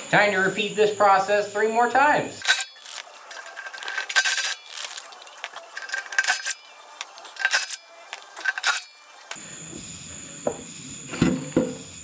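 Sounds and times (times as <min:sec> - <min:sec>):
impact wrench hammering: 0:02.4 - 0:09.4.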